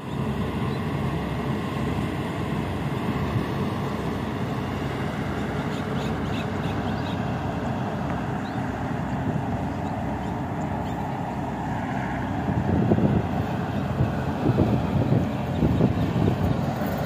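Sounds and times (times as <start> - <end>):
wind buffeting microphone: 1.9 - 17.0.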